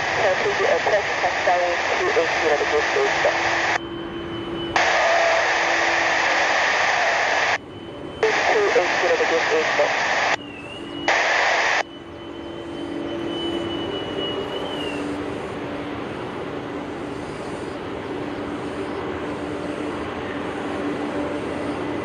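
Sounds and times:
radio hiss: 0.0 - 3.8, 4.8 - 7.6, 8.2 - 10.4, 11.1 - 11.9
jet engines rushing: 0.0 - 22.0
faint thin whistle: 11.8 - 15.1.

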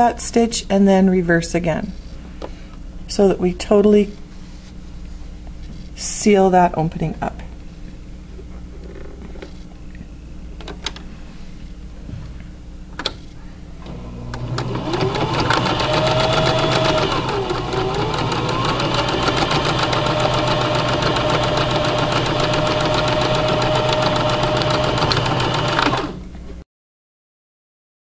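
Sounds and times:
sewing machine stitching: 13.9 - 26.2.

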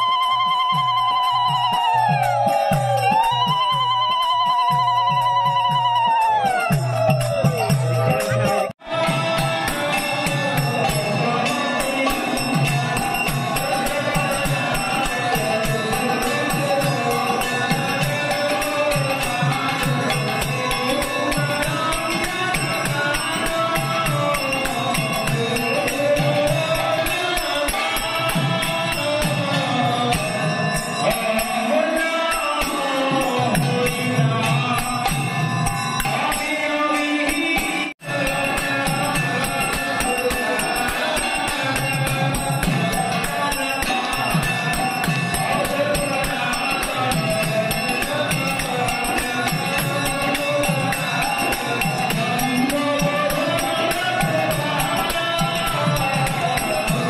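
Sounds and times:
hand percussion: 0.0 - 57.0
group chanting: 7.6 - 30.4.

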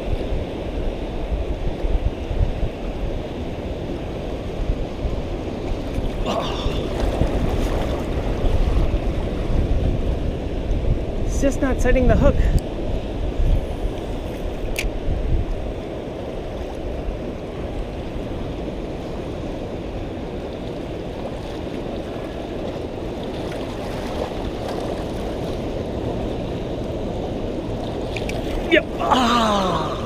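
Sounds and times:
wind on microphone: 0.0 - 30.0
water lapping against rocks: 5.8 - 8.8.

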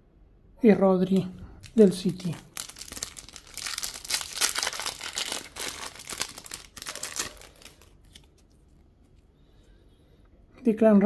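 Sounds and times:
foil pack crinkling: 1.6 - 8.6.

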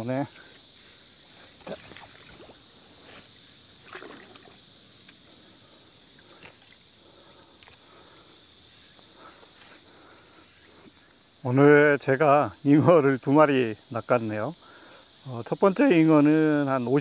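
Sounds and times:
river water sloshing and dripping: 1.5 - 2.7, 3.8 - 5.2, 6.1 - 6.9
small water splashes: 1.6 - 2.6, 3.8 - 4.6.

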